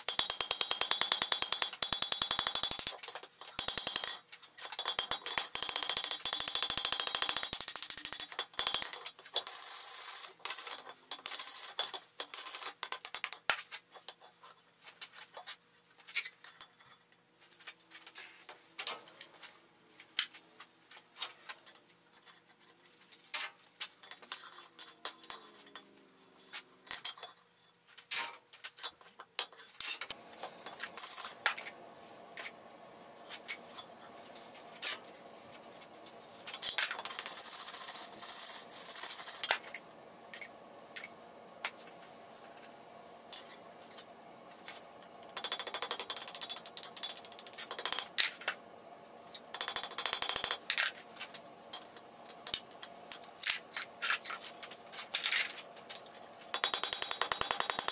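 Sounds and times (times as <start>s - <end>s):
steady low hum: 30.1s - 57.0s.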